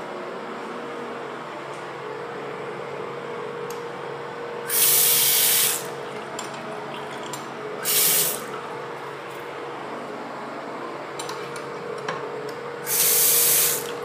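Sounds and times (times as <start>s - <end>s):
steady background hum: 0.0s - 14.0s
faucet running into sink: 4.7s - 8.6s, 12.9s - 14.0s
hissing spurts of spray: 7.8s - 8.4s, 12.9s - 13.9s.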